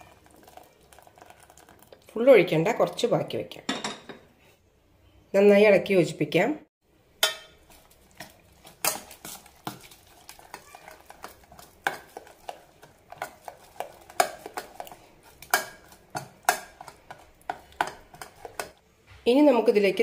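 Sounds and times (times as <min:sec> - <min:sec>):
ladle scraping steel pot: 0:07.2 - 0:18.8.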